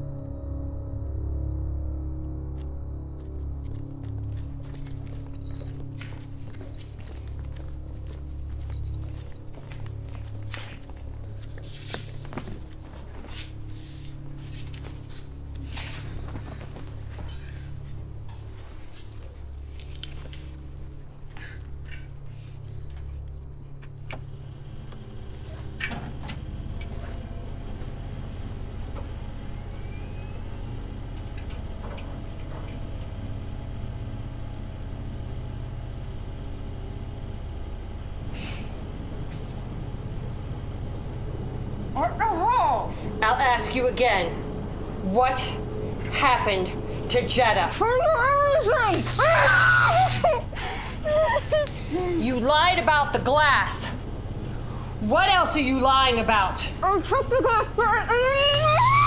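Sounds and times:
low drone: 0.0s - 59.0s
low steady hum: 0.0s - 59.0s
shuffling footsteps: 2.6s - 21.6s.

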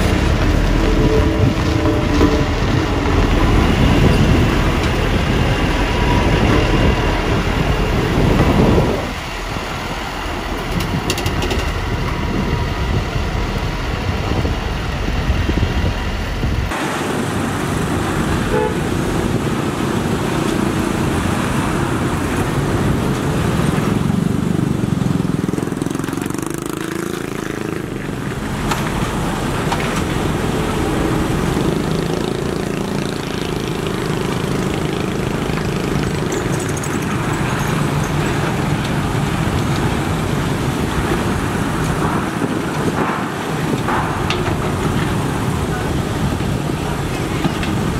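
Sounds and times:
excavator diesel engine working: 0.0s - 47.9s
passing motorbikes and trucks: 0.0s - 47.9s
road roller diesel engine: 0.0s - 47.9s
horn toots: 18.5s - 18.9s.

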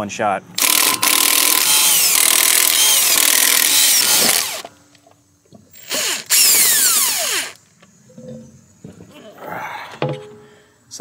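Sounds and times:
impact wrench whirring: 0.6s - 4.7s, 5.8s - 7.6s.

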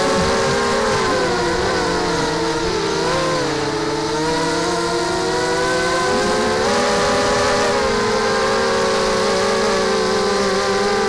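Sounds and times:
quadcopter motors buzzing: 0.0s - 11.0s.

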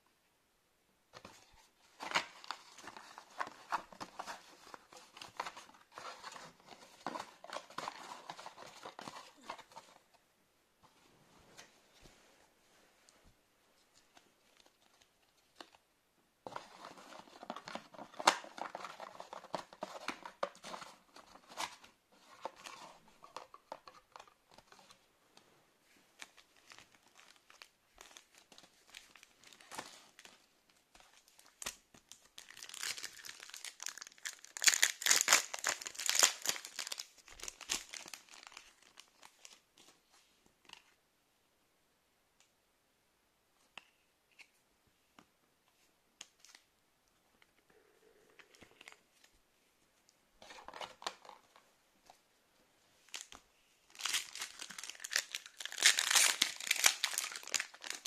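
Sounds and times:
foil wrappers crinkling and tearing: 31.3s - 39.6s, 53.9s - 58.0s.

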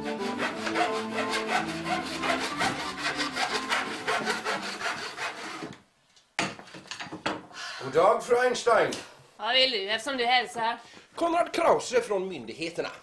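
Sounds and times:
handsaw cutting wood: 0.0s - 5.8s.

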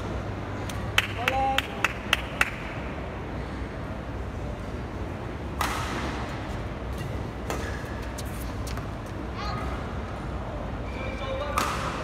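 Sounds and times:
sports hall hum: 0.0s - 12.0s
racket striking shuttlecock: 5.6s - 6.2s, 11.5s - 12.0s.

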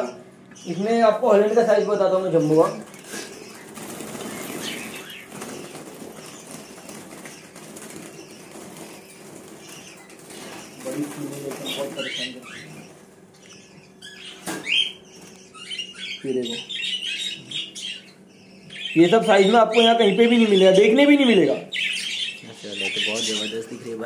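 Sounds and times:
bird chirps: 0.0s - 24.0s
birds flapping wings in cage: 2.6s - 13.0s.

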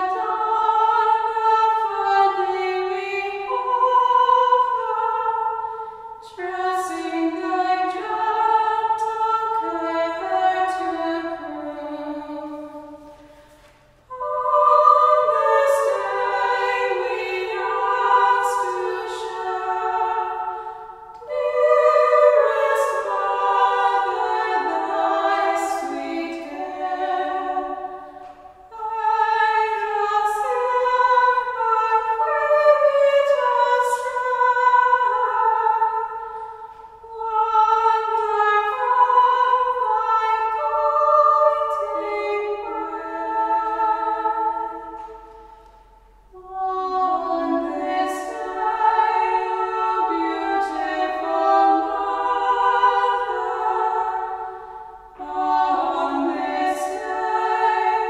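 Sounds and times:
women singing unaccompanied: 0.0s - 13.2s, 14.0s - 58.0s.

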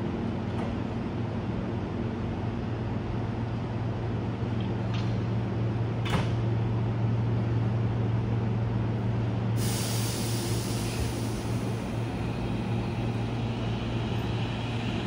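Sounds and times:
air hiss: 9.6s - 15.0s
brake air hiss: 9.6s - 15.0s
electric train humming: 9.6s - 15.0s.

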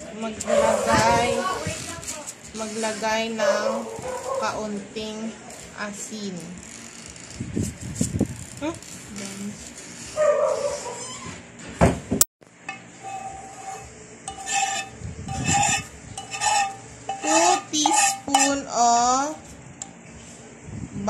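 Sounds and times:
metal spoon scraping frying pan: 12.7s - 18.8s.

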